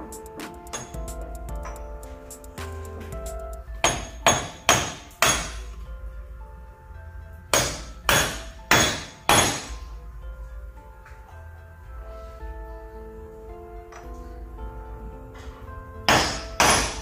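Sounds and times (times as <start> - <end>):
hammer striking metal: 0.0 - 5.8, 7.5 - 9.9, 15.4 - 17.0.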